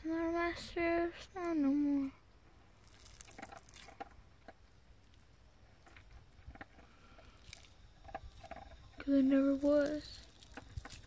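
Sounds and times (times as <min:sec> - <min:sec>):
sticky slime squelches: 0:02.8 - 0:04.2, 0:07.2 - 0:11.0.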